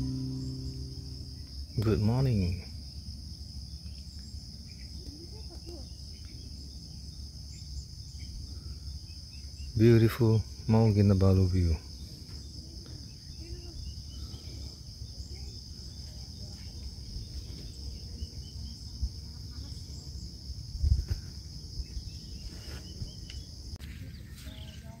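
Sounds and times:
insect chorus drone: 0:00.0 - 0:25.0
wind rumble on microphone: 0:20.6 - 0:23.3.

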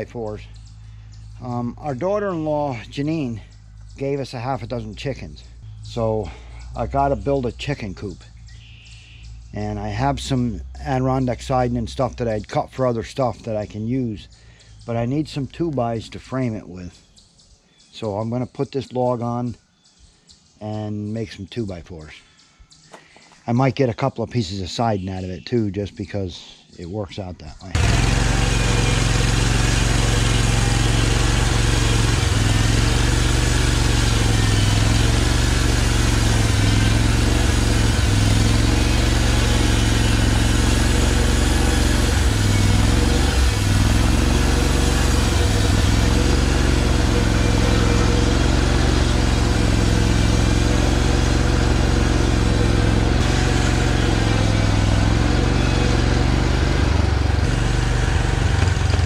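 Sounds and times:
sawmill engine running: 0:00.0 - 0:08.0, 0:27.7 - 0:59.0.

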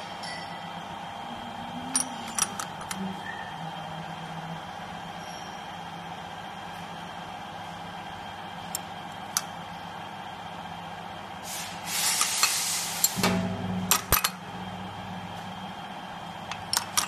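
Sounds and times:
loud hiss: 0:11.4 - 0:13.2
labeling machine hum: 0:12.7 - 0:17.0.

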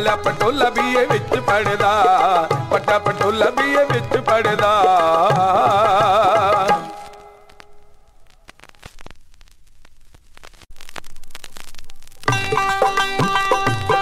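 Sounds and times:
vinyl surface crackle and clicks: 0:00.2 - 0:14.0
instrumental music with beat: 0:12.2 - 0:14.0.

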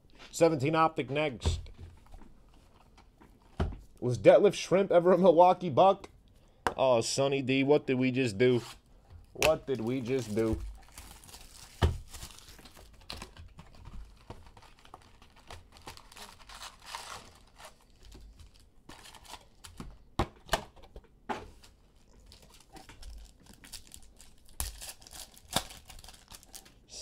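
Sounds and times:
card pack wrappers crinkling: 0:09.4 - 0:20.0, 0:21.6 - 0:26.8.

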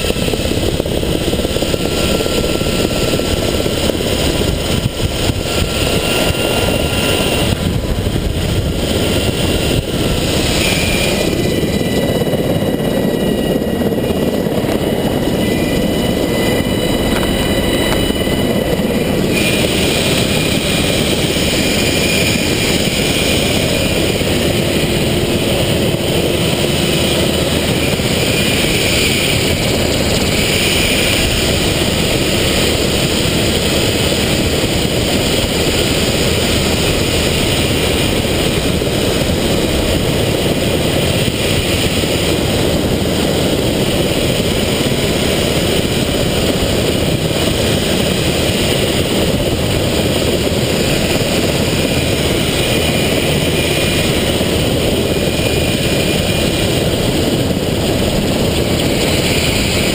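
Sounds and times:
thin high whine: 0:00.0 - 0:46.5
helicopter engines and rotor: 0:00.0 - 0:59.9.

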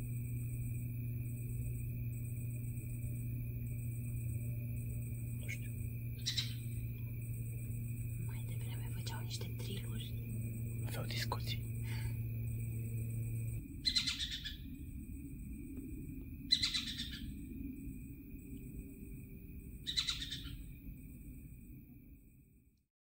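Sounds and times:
low rumble: 0:00.0 - 0:13.9, 0:14.6 - 0:16.6
bird calling: 0:05.0 - 0:14.8, 0:16.5 - 0:17.4, 0:19.9 - 0:20.7.

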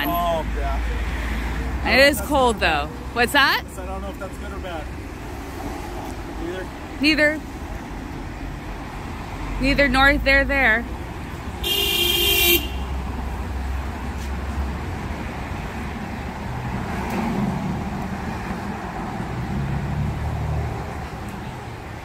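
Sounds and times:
traffic rumble: 0:00.0 - 0:22.0
vehicle horn: 0:11.6 - 0:13.1.

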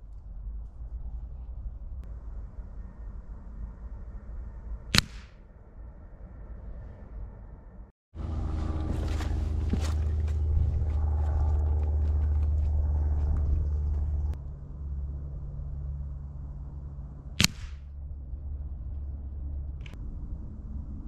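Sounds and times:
low rumble: 0:00.0 - 0:21.0
pellet striking paper target: 0:05.0 - 0:05.3, 0:17.4 - 0:17.8
footsteps crunching on rough ground: 0:08.2 - 0:14.4.

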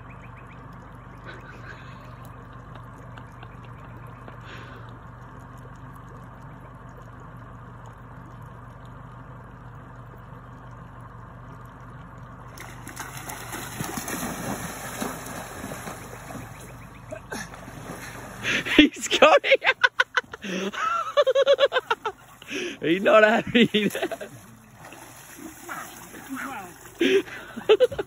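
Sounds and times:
water stirred by wading legs: 0:00.0 - 0:19.2, 0:19.9 - 0:28.0
low hum: 0:00.0 - 0:28.0
loud splashing: 0:12.5 - 0:19.3, 0:22.0 - 0:28.0.

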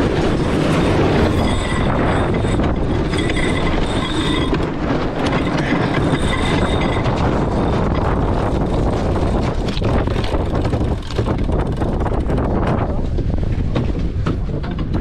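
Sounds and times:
wind rushing: 0:00.0 - 0:14.5
water breaking along hull: 0:00.0 - 0:15.0
winch clicking rapidly: 0:00.2 - 0:13.0
high squeal: 0:00.4 - 0:08.7.

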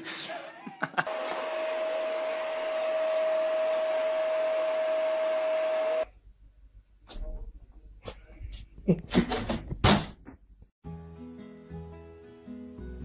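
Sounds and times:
small electric appliance whirring: 0:01.1 - 0:06.1.

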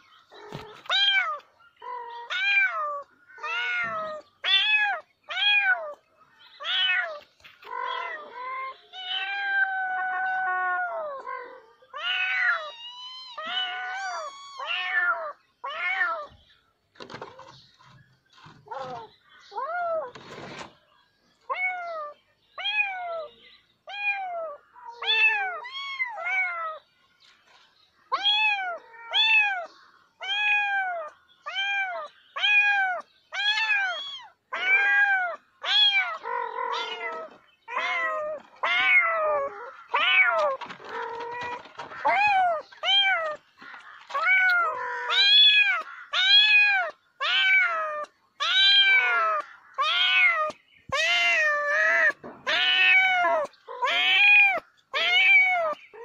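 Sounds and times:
cat meowing: 0:06.6 - 0:16.3, 0:28.1 - 0:43.4, 0:44.0 - 0:56.0.

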